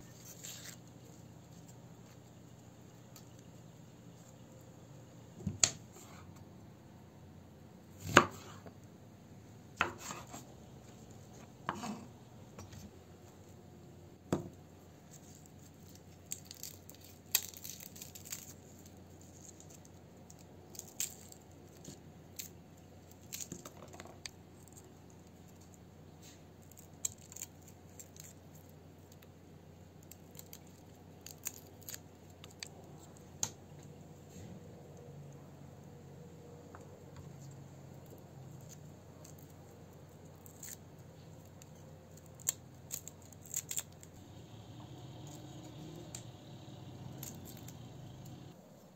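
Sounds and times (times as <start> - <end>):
garlic cloves cracking and peeling: 15.1 - 33.6, 38.0 - 48.5.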